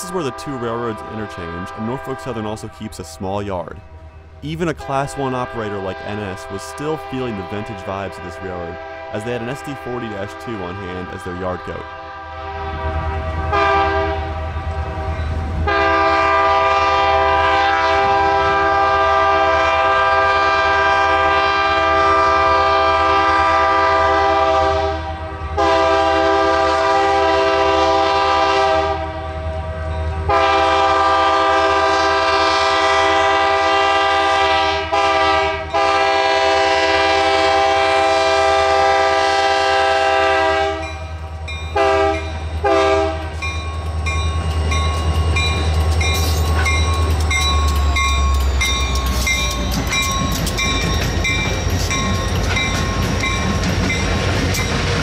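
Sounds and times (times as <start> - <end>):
locomotive air horn blasts: 0.0 - 2.8, 4.4 - 41.1, 41.8 - 43.5.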